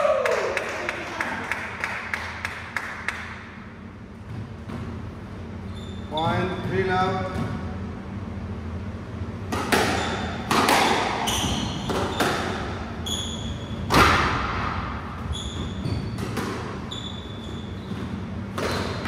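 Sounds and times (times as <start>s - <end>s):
squash ball striking rackets and walls: 9.4s - 19.0s
shoes squeaking on wooden floor: 11.2s - 13.8s, 15.2s - 19.0s.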